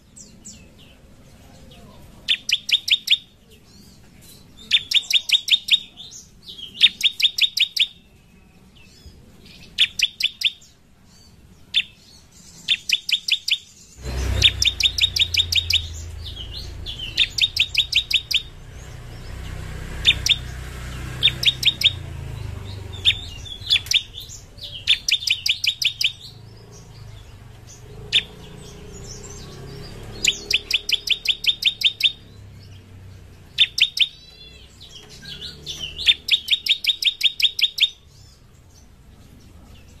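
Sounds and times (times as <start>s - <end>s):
bird singing rapid high notes: 2.2s - 39.0s
low rumble: 14.0s - 25.1s.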